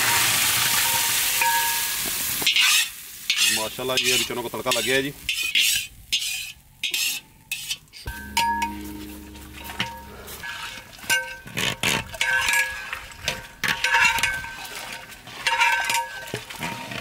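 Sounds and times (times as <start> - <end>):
metal ladle scraping metal pot: 2.5 - 17.0
pot ringing: 8.1 - 11.5.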